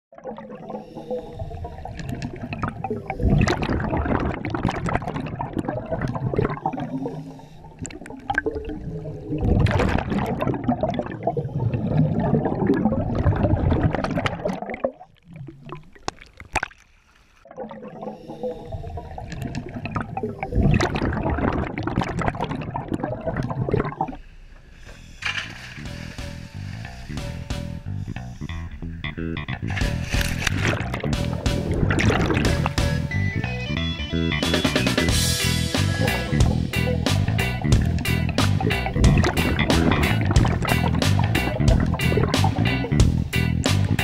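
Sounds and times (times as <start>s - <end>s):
gurgling exhaled bubbles underwater: 0.1s - 16.8s, 17.5s - 24.2s, 30.5s - 32.8s, 36.2s - 43.0s.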